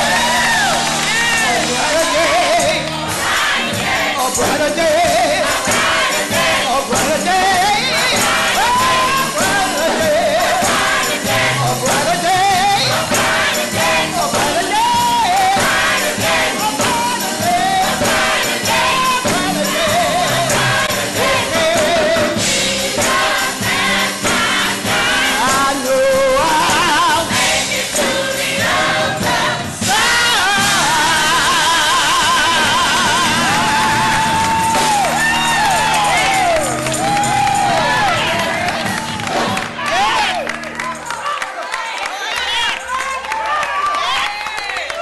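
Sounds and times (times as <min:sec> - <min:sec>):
backing singers: 0:00.0 - 0:45.0
percussion: 0:00.0 - 0:45.0.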